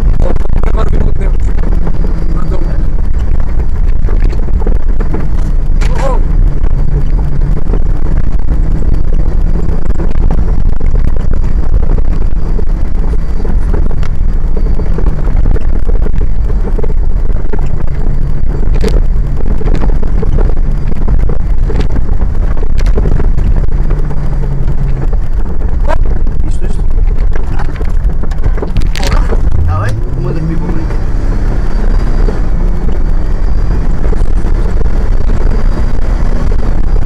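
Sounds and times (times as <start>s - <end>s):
off-road vehicle engine under load: 0.0s - 37.0s
wind buffeting microphone: 0.0s - 37.0s.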